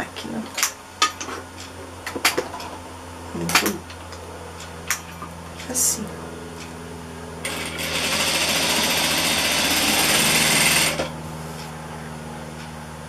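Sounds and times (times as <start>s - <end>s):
steady low hum: 0.0s - 13.0s
sewing machine stitching: 7.5s - 11.1s.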